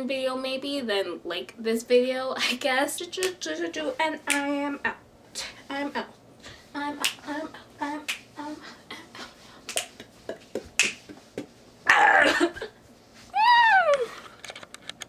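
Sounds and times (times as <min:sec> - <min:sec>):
finger snaps: 0:09.7 - 0:10.0, 0:10.8 - 0:11.5.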